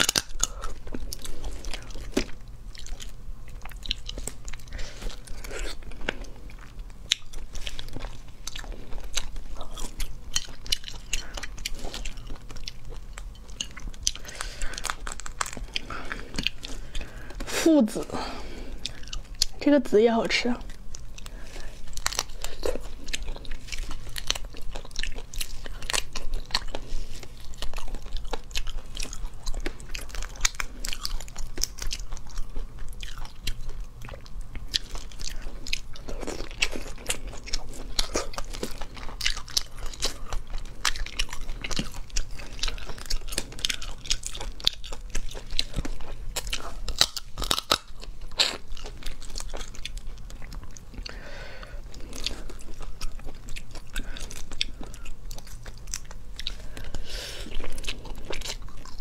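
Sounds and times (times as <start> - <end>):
prawn shells crackling: 0.0 - 17.6, 34.8 - 50.0
crunching and chewing: 0.0 - 19.8, 20.5 - 59.0.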